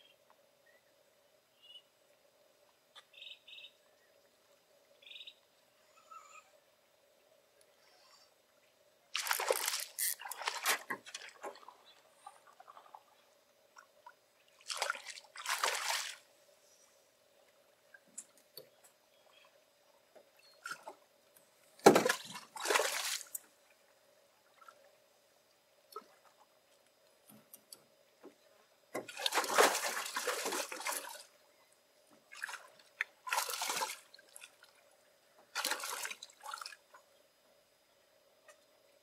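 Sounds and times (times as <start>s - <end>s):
fish splashing at water surface: 9.2s - 10.9s, 29.0s - 31.2s.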